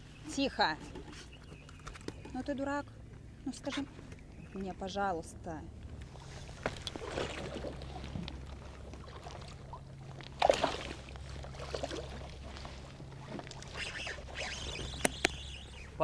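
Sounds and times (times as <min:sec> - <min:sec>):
steady low hum: 0:00.0 - 0:16.0
water sloshing against boat: 0:00.0 - 0:16.0.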